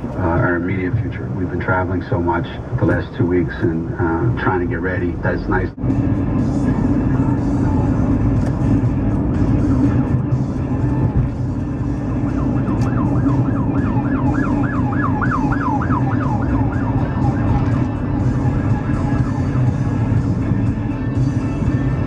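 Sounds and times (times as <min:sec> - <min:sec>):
road noise inside car: 0:00.0 - 0:22.0
police siren yelping: 0:12.1 - 0:20.0.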